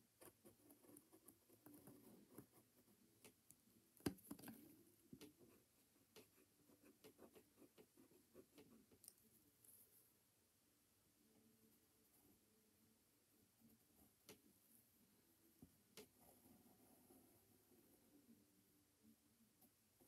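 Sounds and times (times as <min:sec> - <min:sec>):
pencil scratching on paper: 0:00.2 - 0:03.1, 0:04.1 - 0:09.0.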